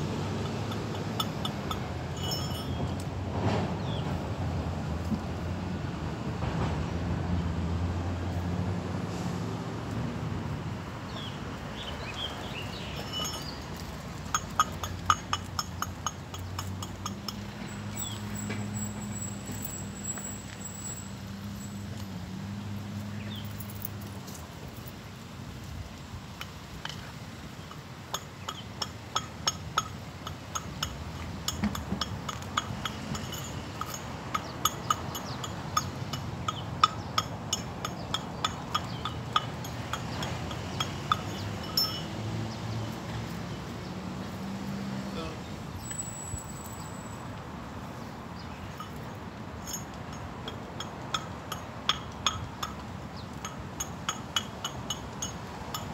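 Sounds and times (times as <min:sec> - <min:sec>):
clinking taps on concrete: 0:00.4 - 0:03.1, 0:13.0 - 0:20.4, 0:27.7 - 0:42.2, 0:48.7 - 0:55.9.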